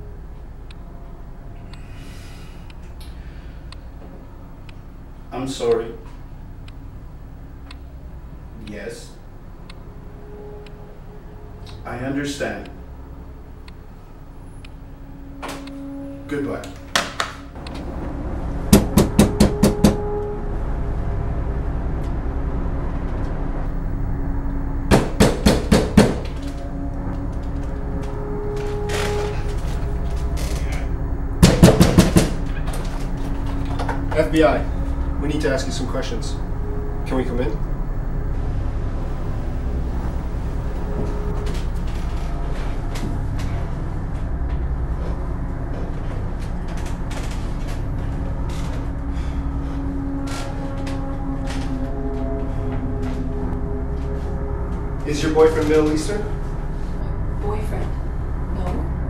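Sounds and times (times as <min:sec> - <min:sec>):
held ominous tones: 0:00.0 - 0:59.0
low musical drone: 0:00.0 - 0:59.0
knocking on a door: 0:18.7 - 0:20.0, 0:31.4 - 0:32.4.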